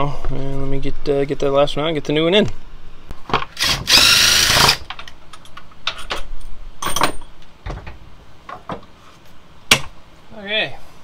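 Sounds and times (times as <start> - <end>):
metal clinks and knocks: 4.9 - 7.4.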